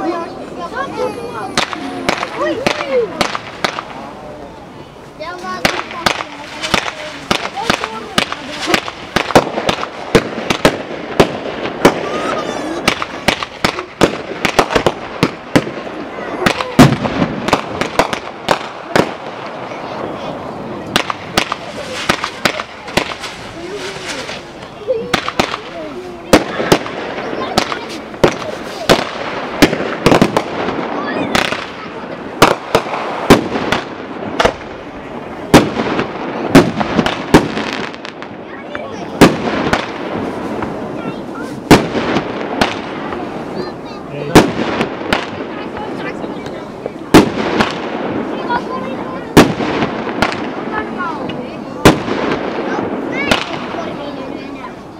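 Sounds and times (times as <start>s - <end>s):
background noise: 0.0s - 54.9s
fireworks bangs and pops: 0.0s - 54.9s
fireworks crackling: 0.0s - 54.9s.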